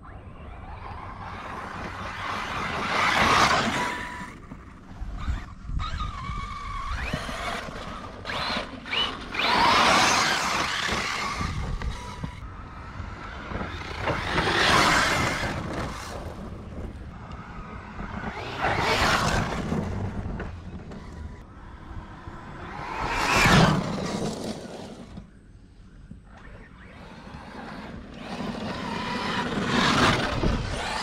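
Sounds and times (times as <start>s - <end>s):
electric motor whining: 0.0s - 25.2s, 26.3s - 31.0s
tires spraying sand: 6.3s - 25.2s, 26.8s - 31.0s.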